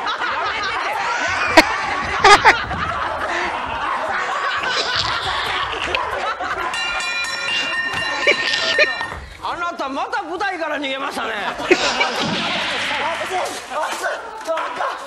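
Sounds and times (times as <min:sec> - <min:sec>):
studio audience laughter: 0:00.0 - 0:09.0, 0:11.3 - 0:14.0
man laughing: 0:03.3 - 0:06.9, 0:07.5 - 0:09.0, 0:11.6 - 0:13.6.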